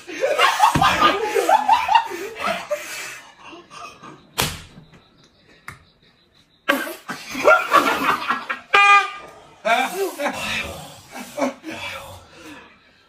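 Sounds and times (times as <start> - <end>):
sharp smack: 4.4 - 4.8.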